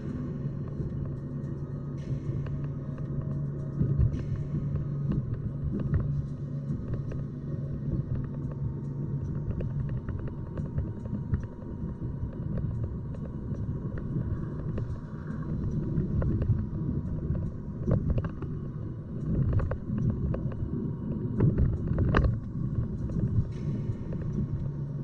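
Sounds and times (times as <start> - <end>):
road and engine rumble: 0.0 - 25.0.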